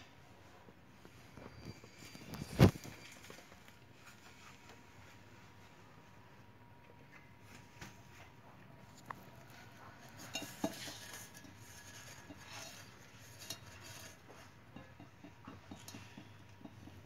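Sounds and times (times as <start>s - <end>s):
metallic clinks and scrapes: 9.4s - 17.0s.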